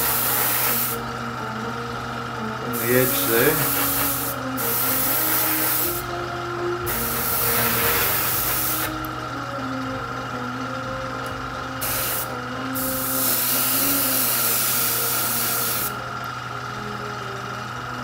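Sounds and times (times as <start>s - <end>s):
airbrush spraying hiss: 0.0s - 1.0s, 2.8s - 6.1s, 6.8s - 8.9s, 11.8s - 16.0s
steady hum: 0.0s - 18.0s.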